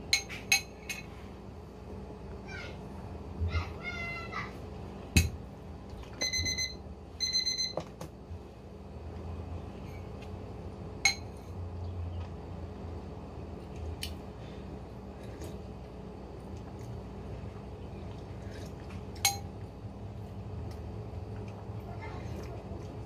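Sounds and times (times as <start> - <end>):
spoon clinking ceramic bowl: 19.2 - 19.5.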